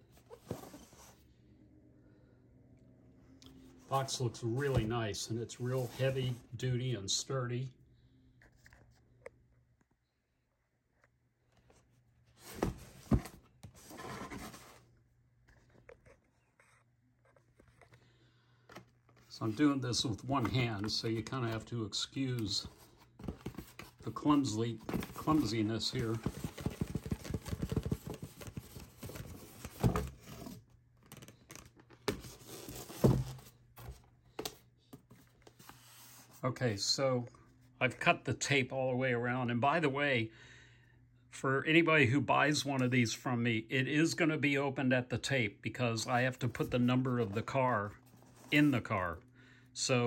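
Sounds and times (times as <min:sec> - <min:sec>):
cardboard scraping and rustling: 0:00.0 - 0:01.2, 0:05.6 - 0:06.4, 0:11.7 - 0:14.9, 0:22.4 - 0:36.4.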